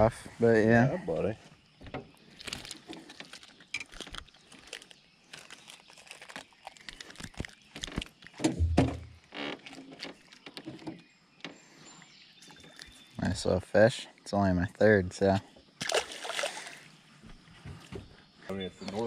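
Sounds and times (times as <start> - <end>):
hands handling a fish: 2.2 - 9.0
dull knock: 8.5 - 9.1.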